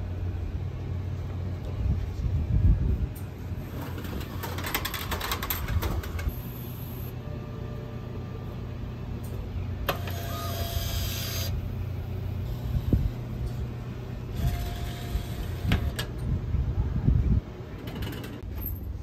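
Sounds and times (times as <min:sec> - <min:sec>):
steady low hum: 0:00.0 - 0:19.0
vending door click and motor whir: 0:03.7 - 0:06.8, 0:09.2 - 0:11.6, 0:14.3 - 0:16.3, 0:17.8 - 0:18.8.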